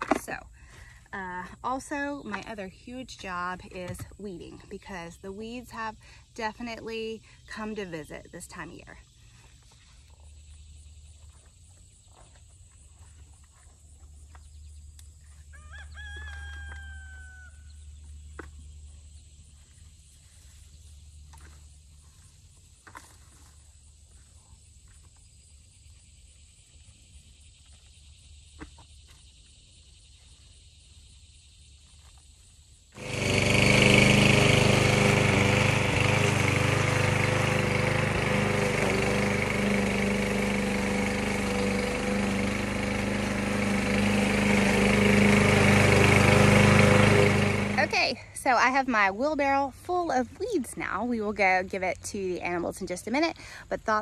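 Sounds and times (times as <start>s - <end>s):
lawn mower running: 0.0s - 8.8s, 33.0s - 51.8s
rooster crowing: 15.5s - 17.8s.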